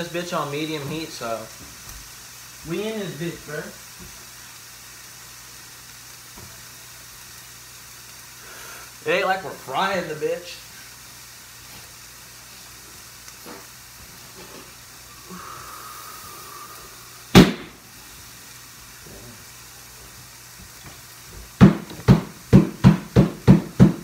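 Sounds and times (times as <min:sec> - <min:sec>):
cutlets frying in a pan: 0:00.0 - 0:24.0.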